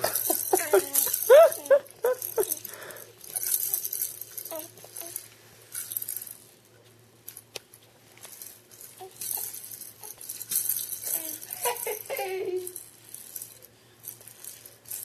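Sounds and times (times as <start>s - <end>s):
toy rattle shaking: 0.0s - 6.6s, 8.2s - 15.0s.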